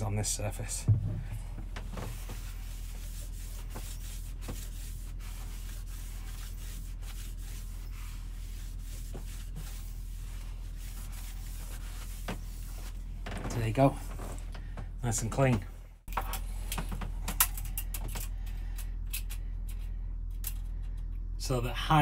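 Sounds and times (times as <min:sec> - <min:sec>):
steady low hum: 0:00.0 - 0:22.0
paper towel scrubbing plastic: 0:01.8 - 0:13.1.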